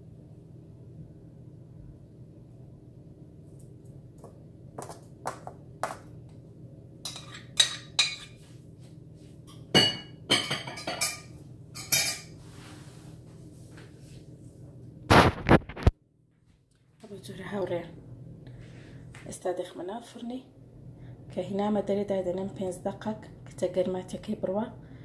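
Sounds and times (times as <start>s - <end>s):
faint steady hum: 0.0s - 25.0s
metal spoon clinking on ceramic dish: 7.1s - 8.4s, 9.5s - 12.3s.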